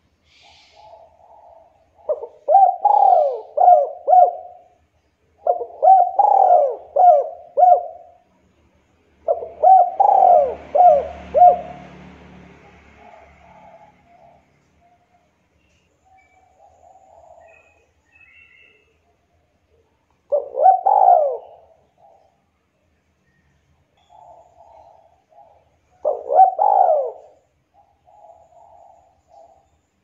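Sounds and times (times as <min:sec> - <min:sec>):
dove cooing: 0:00.3 - 0:04.8, 0:05.4 - 0:08.3, 0:09.2 - 0:15.3, 0:16.1 - 0:19.1, 0:20.3 - 0:22.5, 0:24.0 - 0:29.8.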